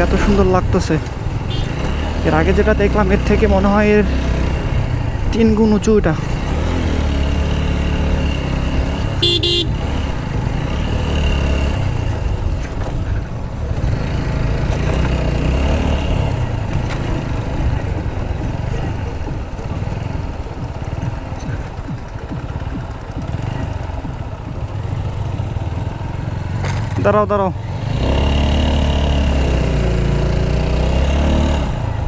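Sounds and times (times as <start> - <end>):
motorcycle engine running: 0.0 - 32.0
horn toot: 1.5 - 1.9, 9.2 - 9.8.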